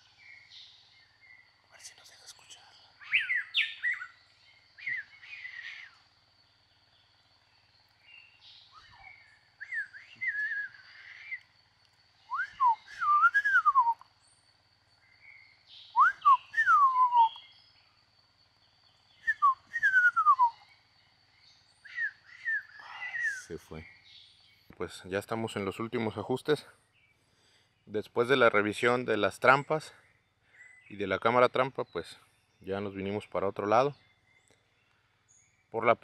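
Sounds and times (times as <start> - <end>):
songbird whistling: 0.0 - 6.0, 7.6 - 14.4, 15.0 - 18.0, 18.9 - 24.8
faint steady high whine: 0.0 - 36.0.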